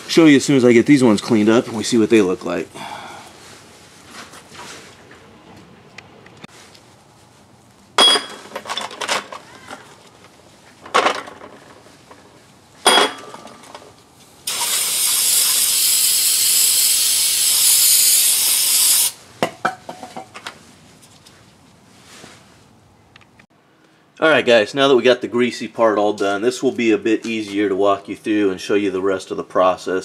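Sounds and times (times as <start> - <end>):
spray hiss: 14.5 - 19.2.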